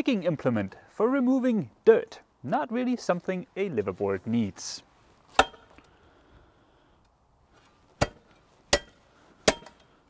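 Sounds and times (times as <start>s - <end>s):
spade clinking on frozen ground: 8.0s - 9.9s.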